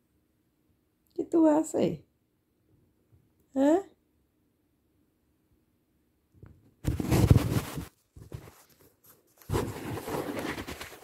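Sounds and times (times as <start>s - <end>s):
phone rustling against bedding: 6.8s - 11.0s.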